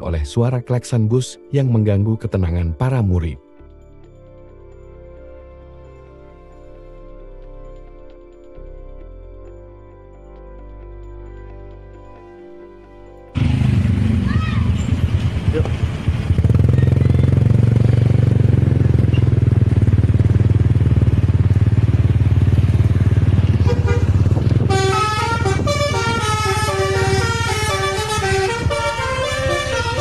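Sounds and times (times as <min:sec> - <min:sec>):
bus and motorcycle engines rumbling: 0:13.4 - 0:30.0
multi-tone musical air horn: 0:23.6 - 0:30.0.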